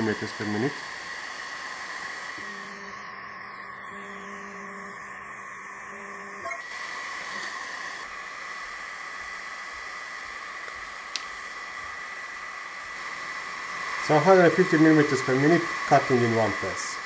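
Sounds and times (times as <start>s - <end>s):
steady hiss: 0.0s - 5.9s, 6.6s - 17.0s
faint high whine: 0.0s - 17.0s
laser engraver humming: 0.0s - 17.0s
small click: 10.6s - 11.3s.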